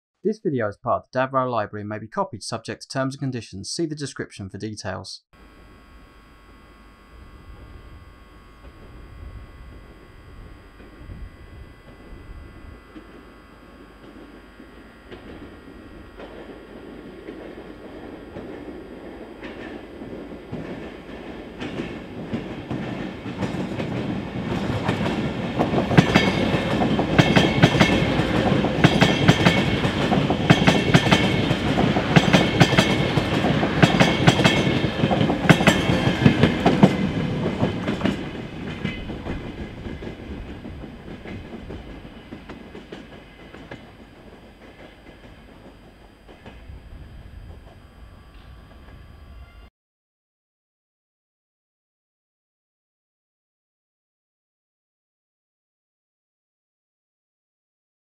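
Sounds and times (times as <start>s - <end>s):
electric train passing: 5.4s - 49.7s
train wheels clicking over rail joints: 16.2s - 46.6s.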